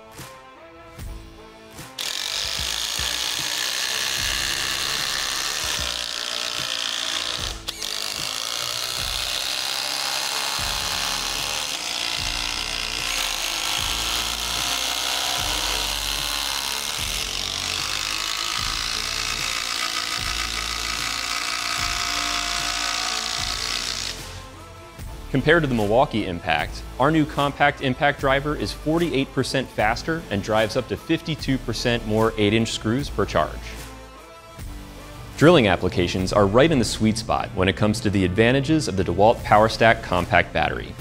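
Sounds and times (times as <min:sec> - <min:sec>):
impact drivers driving screws: 0:02.0 - 0:24.4.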